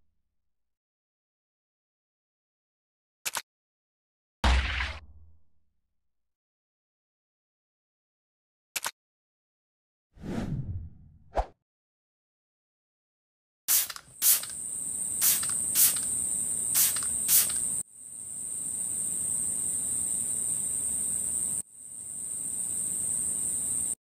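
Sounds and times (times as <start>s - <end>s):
spray bottle squirting: 13.7s - 14.6s, 15.2s - 17.8s
insect-like chirring buzz: 13.7s - 24.0s.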